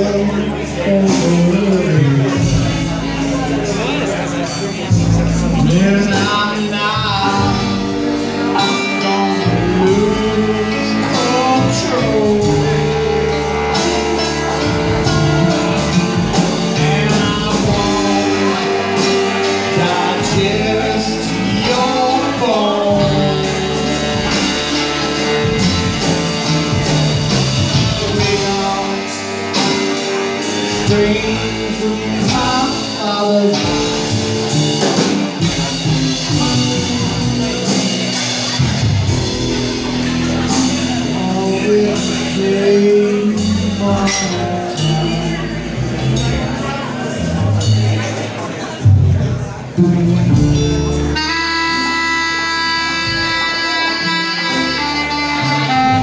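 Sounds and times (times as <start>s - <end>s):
banjo: 0.0s - 56.0s
drums: 0.0s - 56.0s
electric guitar: 0.0s - 56.0s
upright bass: 0.0s - 56.0s
saxophone: 49.8s - 56.0s.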